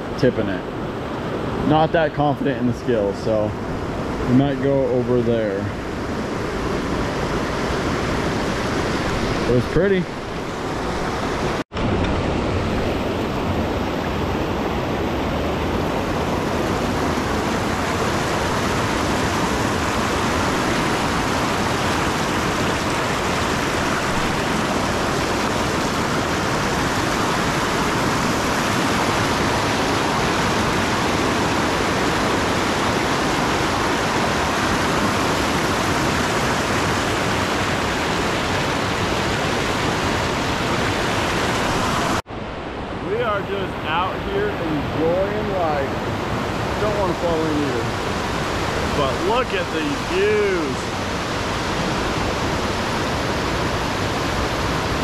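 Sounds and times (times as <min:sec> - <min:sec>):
river rapids rushing: 0:12.2 - 0:55.0.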